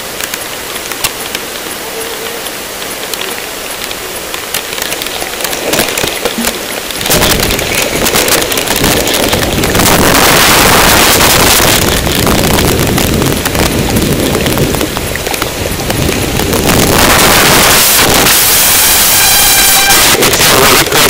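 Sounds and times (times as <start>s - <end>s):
harsh wind noise on microphone: 4.4s - 21.0s.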